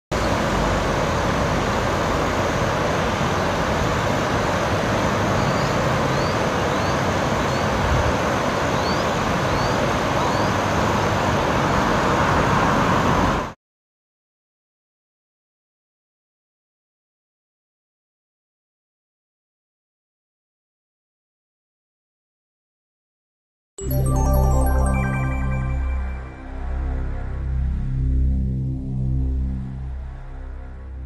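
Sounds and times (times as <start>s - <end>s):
floodwater rushing: 0.2s - 13.4s.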